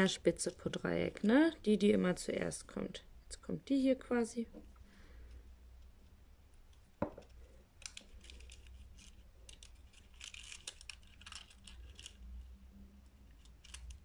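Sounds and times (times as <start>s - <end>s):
paper crackling and crinkling: 7.8s - 12.5s, 13.2s - 14.0s.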